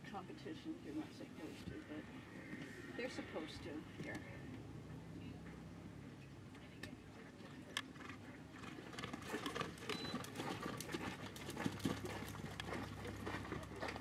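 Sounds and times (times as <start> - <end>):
horse hoofbeats on sand: 8.6 - 14.0.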